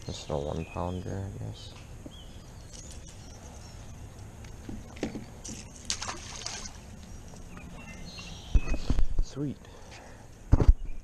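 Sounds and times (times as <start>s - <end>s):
fish splashing into water: 5.5s - 6.9s.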